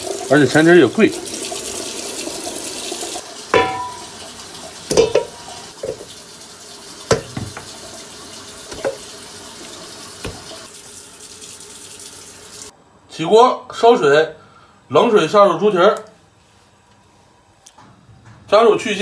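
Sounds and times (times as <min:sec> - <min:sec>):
kitchen tap running: 0:00.0 - 0:12.7.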